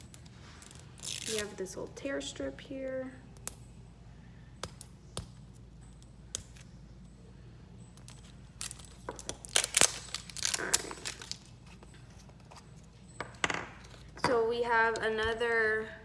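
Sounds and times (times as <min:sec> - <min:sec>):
plastic packet tearing and crinkling: 0:00.6 - 0:01.6, 0:08.6 - 0:11.5.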